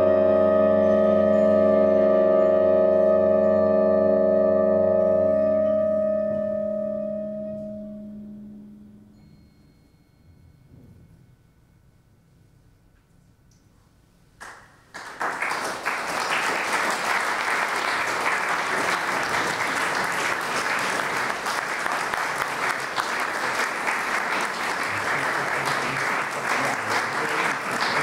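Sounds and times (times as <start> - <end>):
crowd applause: 14.4 - 28.0.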